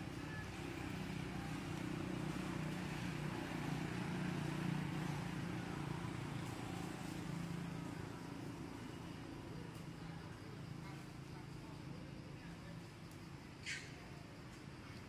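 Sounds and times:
motor engine running: 0:00.0 - 0:09.3.

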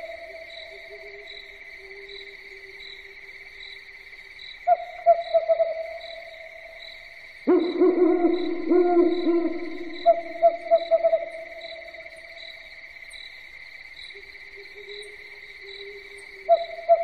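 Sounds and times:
owls hooting: 0:07.5 - 0:11.6.

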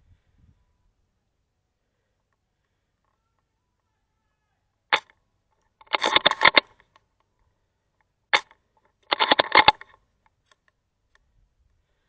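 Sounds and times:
rapid airsoft gun clicks: 0:04.9 - 0:07.4, 0:08.0 - 0:11.3.

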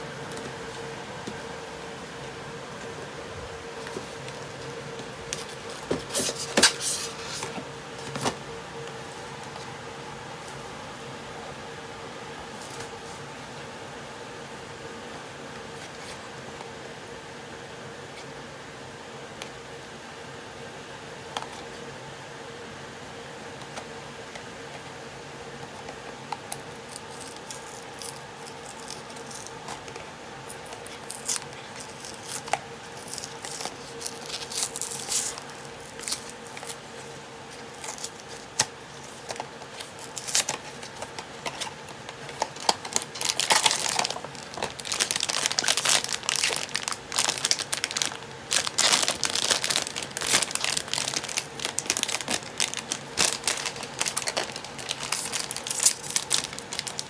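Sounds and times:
foil bag crinkling: 0:26.6 - 0:29.6, 0:30.5 - 0:57.0.

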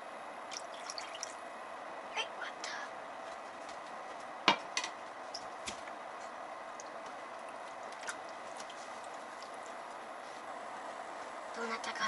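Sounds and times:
broth bubbling in a pot: 0:00.1 - 0:01.8, 0:05.1 - 0:11.1.

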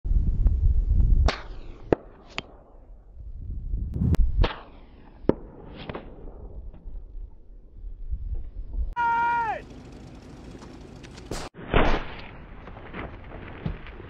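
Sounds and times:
low rumble: 0:03.0 - 0:04.5.

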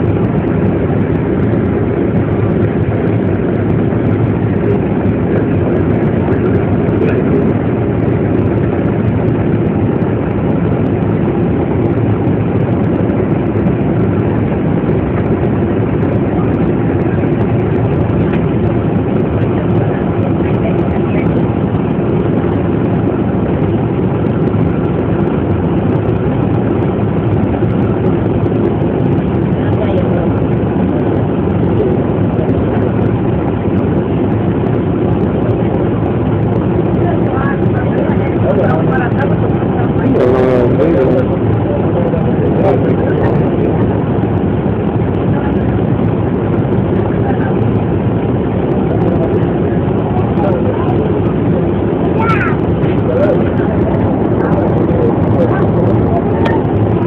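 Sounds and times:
large vehicle engine idling: 0:11.9 - 0:57.0.

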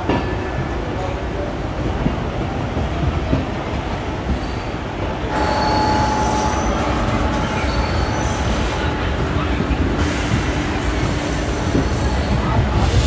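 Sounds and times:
train wheels rumbling on rails: 0:00.0 - 0:13.0
wheel squeal on rail: 0:05.3 - 0:09.1.

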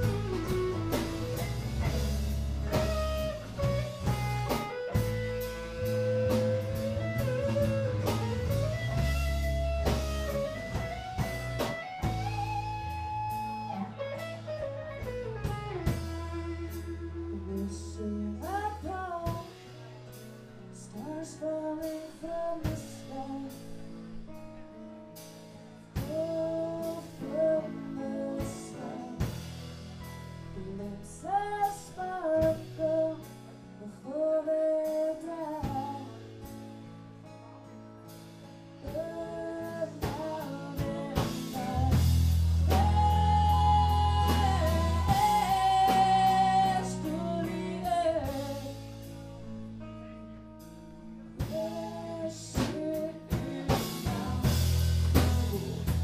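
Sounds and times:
live band playing: 0:00.0 - 0:20.6, 0:25.1 - 0:31.8, 0:34.8 - 0:56.0
electric guitar lead: 0:00.0 - 0:20.8, 0:35.3 - 0:56.0
woman singing: 0:11.9 - 0:19.8, 0:20.7 - 0:24.6, 0:26.0 - 0:29.5, 0:30.5 - 0:36.5, 0:38.8 - 0:49.1, 0:51.4 - 0:56.0.

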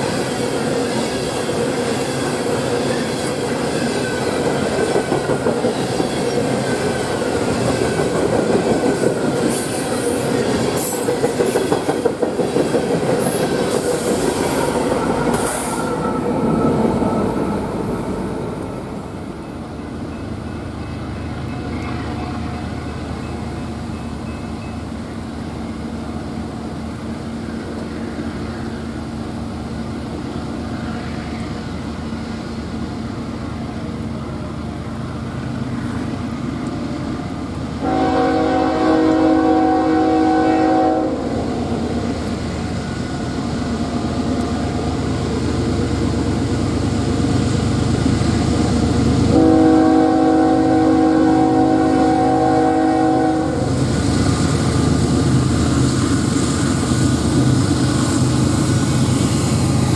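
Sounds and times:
diesel locomotive engine rumble: 0:00.0 - 0:59.9
locomotive air horn blasts: 0:37.8 - 0:41.4, 0:49.3 - 0:53.7.

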